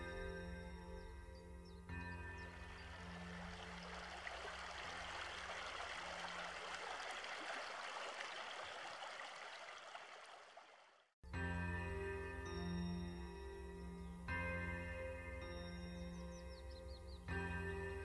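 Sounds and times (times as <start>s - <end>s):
stream water rushing: 2.5s - 11.0s
faint soft music: 11.3s - 18.0s.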